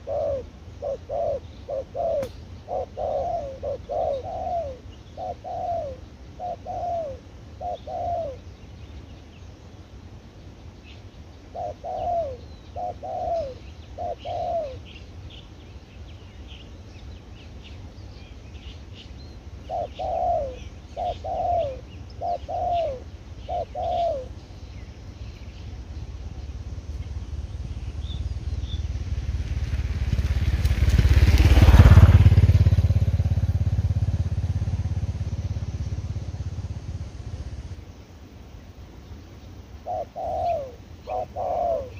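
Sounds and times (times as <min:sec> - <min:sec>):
dove cooing: 0:00.0 - 0:08.5, 0:11.5 - 0:15.0, 0:19.6 - 0:24.5, 0:39.8 - 0:41.9
small birds chirping: 0:00.0 - 0:41.9
low rumble: 0:24.6 - 0:37.9.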